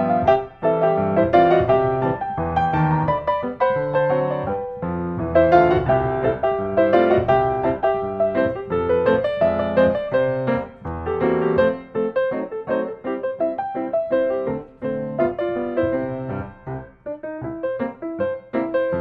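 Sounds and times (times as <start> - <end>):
piano music: 0.0 - 19.0.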